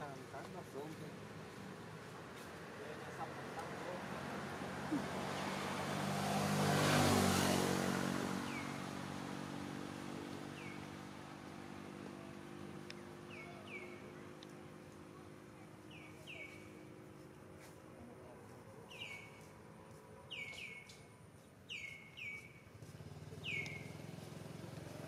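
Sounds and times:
vehicle engine passing by: 0:02.6 - 0:19.0, 0:22.7 - 0:25.0
bird chirping: 0:10.5 - 0:11.0, 0:12.0 - 0:14.6, 0:15.8 - 0:17.0, 0:18.7 - 0:22.7, 0:23.3 - 0:24.1.

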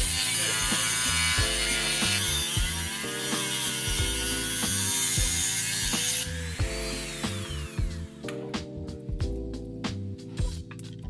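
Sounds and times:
rotary tool grinding metal: 0:00.0 - 0:08.1
background music with beat: 0:00.0 - 0:11.0.

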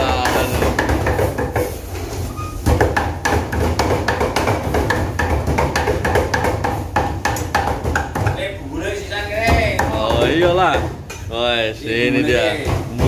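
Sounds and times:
cleaver chopping meat on wood: 0:02.8 - 0:08.3.

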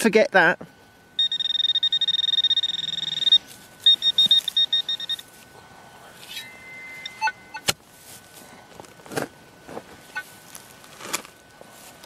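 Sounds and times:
metal detector electronic beeping: 0:01.2 - 0:05.4, 0:06.2 - 0:07.7.

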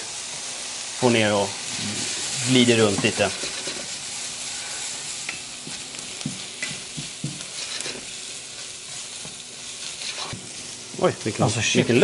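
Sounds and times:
chicken sizzling in a frying pan: 0:00.0 - 0:12.0
wooden spatula knocking on pan: 0:05.6 - 0:07.5.

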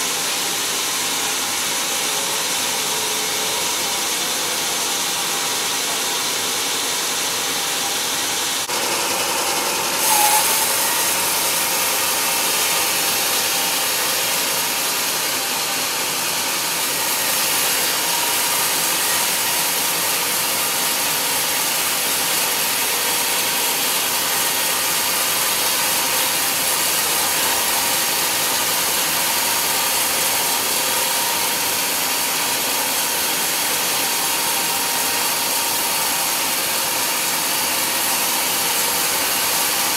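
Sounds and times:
band saw cutting log: 0:00.0 - 0:39.9
sawmill machinery running: 0:00.0 - 0:39.9.

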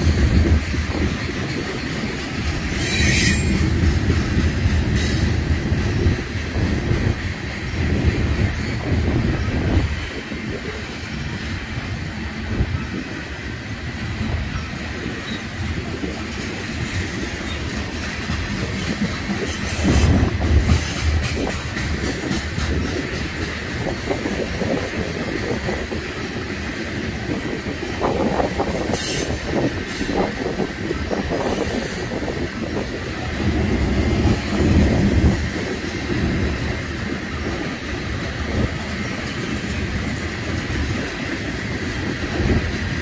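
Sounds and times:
train wheel squeal: 0:00.0 - 0:33.6
train cars rumbling and clattering: 0:00.0 - 0:43.0.

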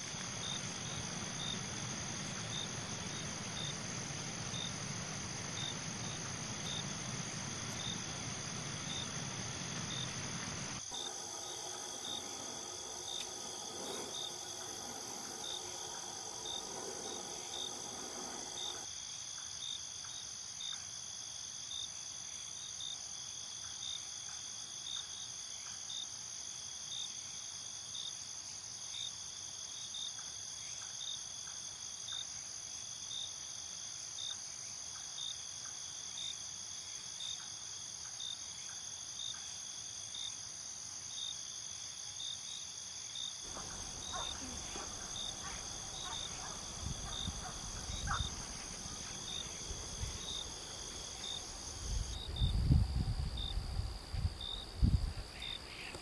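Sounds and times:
low buzz: 0:00.0 - 0:18.8
crickets chirping: 0:00.0 - 0:56.0.

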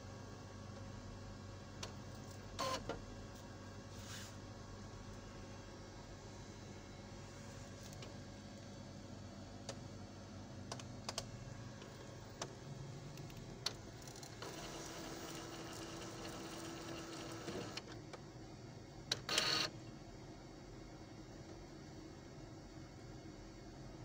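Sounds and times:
printer motor whirr: 0:02.6 - 0:03.0, 0:11.8 - 0:18.0, 0:19.1 - 0:19.7.

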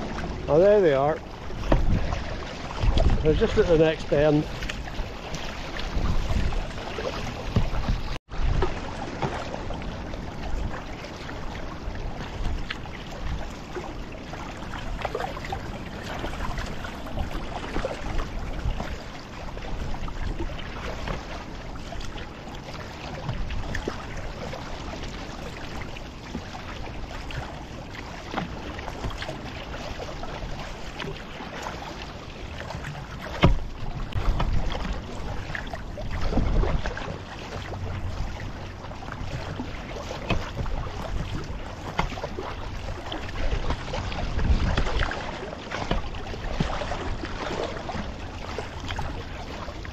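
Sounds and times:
wind on microphone: 0:00.0 - 0:22.0, 0:32.6 - 0:48.1
water splashing against kayak hull: 0:00.0 - 0:49.9.

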